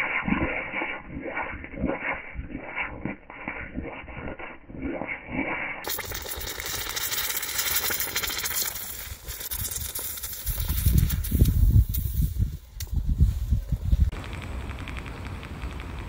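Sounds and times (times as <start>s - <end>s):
molten metal sizzling and crackling: 0.2s - 12.6s
wind buffeting microphone: 10.5s - 16.0s.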